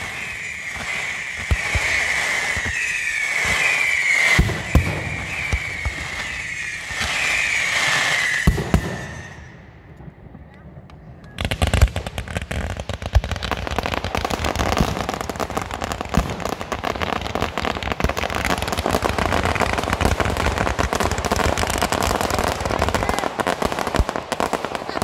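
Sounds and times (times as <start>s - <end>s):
firework bangs: 0.0s - 10.6s, 11.3s - 25.0s
fireworks crackling: 0.0s - 25.0s.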